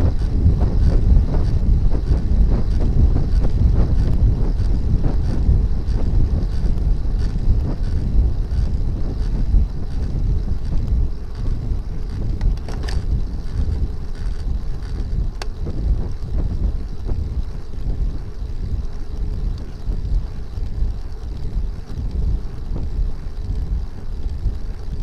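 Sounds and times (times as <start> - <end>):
wind buffeting microphone: 0.0 - 25.0
faint clicks: 6.5 - 15.6.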